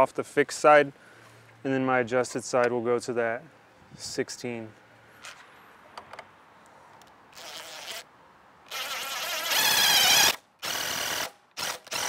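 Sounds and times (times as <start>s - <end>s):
impact driver driving screws: 8.7s - 12.0s.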